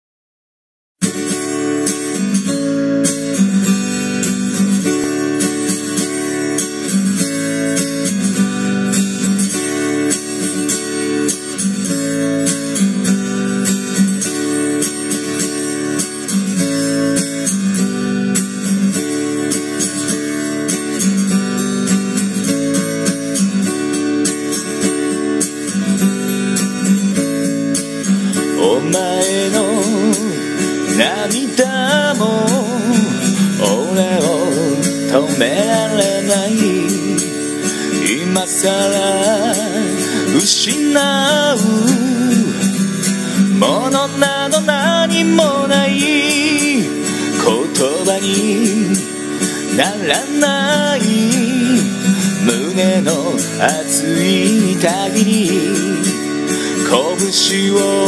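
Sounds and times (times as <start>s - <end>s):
acoustic guitar strumming chords: 1.0s - 58.0s
person singing: 28.4s - 58.0s.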